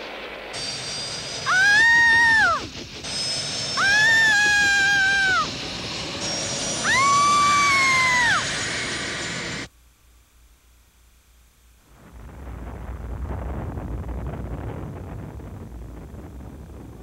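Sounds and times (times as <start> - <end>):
high hissing whine: 0.0 - 17.0
woman screaming: 1.5 - 2.6, 3.8 - 5.5, 6.8 - 8.5.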